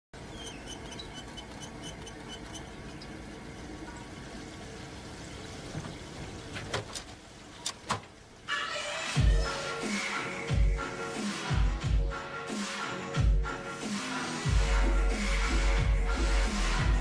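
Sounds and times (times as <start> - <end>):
electronic music: 8.6 - 17.0.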